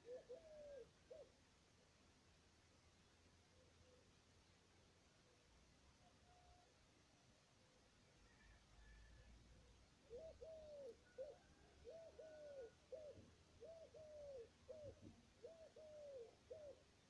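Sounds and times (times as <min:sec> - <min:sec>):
dove cooing: 0:00.0 - 0:01.3, 0:10.0 - 0:17.0.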